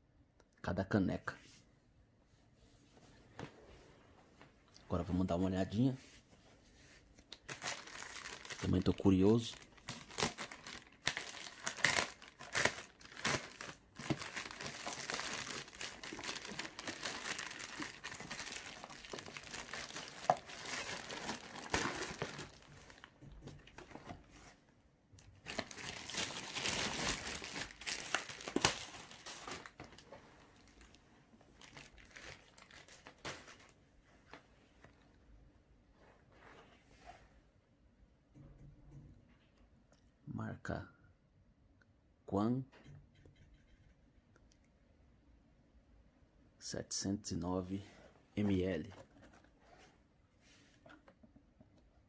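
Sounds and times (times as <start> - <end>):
plastic bag tearing and crinkling: 7.4 - 23.1, 25.5 - 29.8, 31.6 - 33.7.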